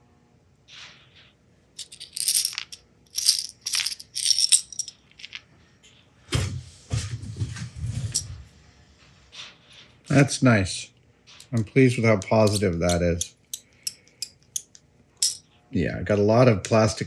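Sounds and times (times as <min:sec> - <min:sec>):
metal screws clinking: 0:01.8 - 0:05.4, 0:12.2 - 0:15.4.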